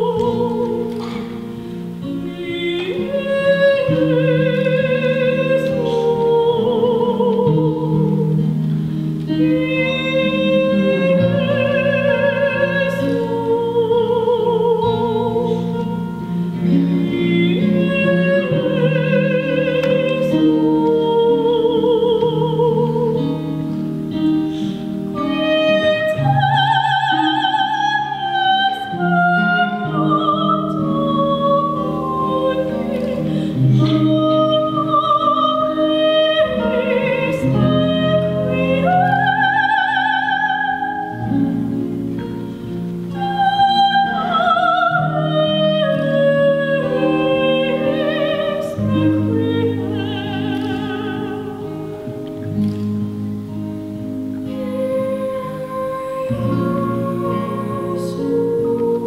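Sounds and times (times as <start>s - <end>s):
woman singing classical melody: 0.0s - 59.0s.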